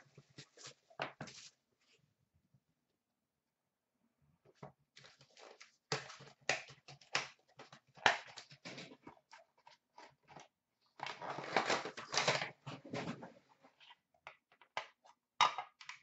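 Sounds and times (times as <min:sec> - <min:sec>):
cards rustling and clicking: 0:05.0 - 0:12.9.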